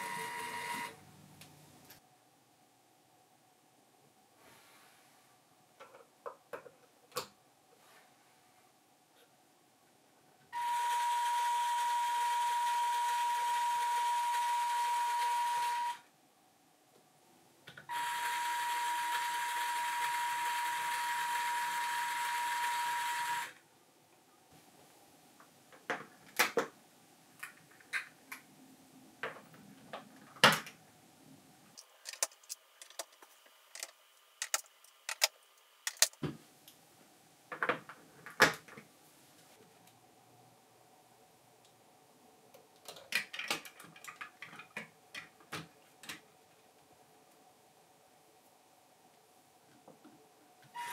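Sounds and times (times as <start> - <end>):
toy electric motor whirring: 10.6 - 16.0, 17.9 - 23.6
plastic bricks clicking: 31.8 - 36.2.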